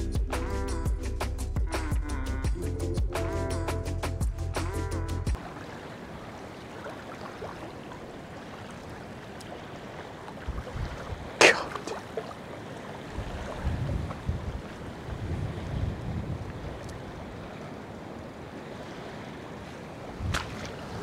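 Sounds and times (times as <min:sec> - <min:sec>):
small waves lapping on rocks: 0:05.4 - 0:21.0
wind buffeting microphone: 0:10.4 - 0:11.4, 0:13.1 - 0:17.6, 0:20.0 - 0:21.0.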